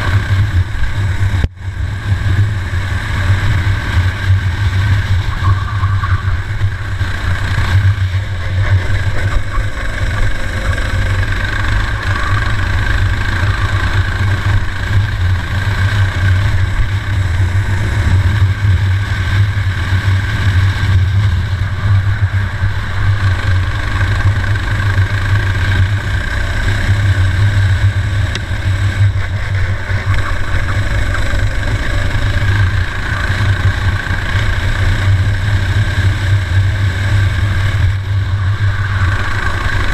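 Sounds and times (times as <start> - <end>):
kart engine running hard: 0.0 - 39.9.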